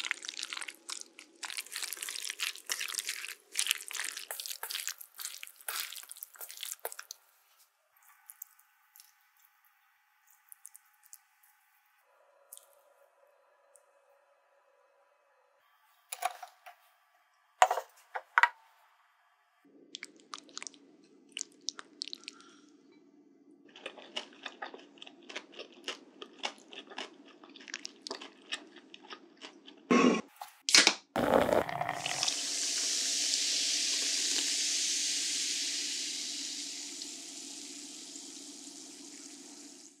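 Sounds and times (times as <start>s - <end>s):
crunching salad: 0.0s - 7.3s, 23.7s - 29.9s
beer fizzing in a glass: 31.2s - 39.8s.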